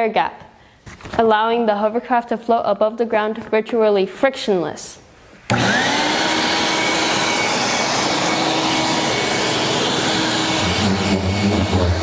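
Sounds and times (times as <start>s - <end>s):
leaf blower rushing air: 5.5s - 12.0s.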